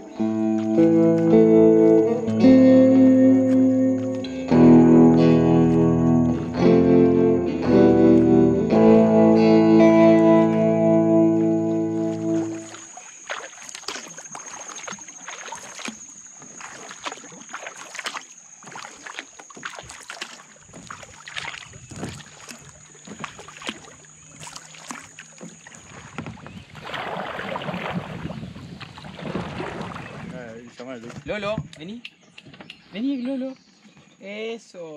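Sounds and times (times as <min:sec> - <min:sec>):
paddle splashing in water: 0:09.7 - 0:31.6
rush of water: 0:10.2 - 0:31.6
water dripping: 0:11.8 - 0:28.0.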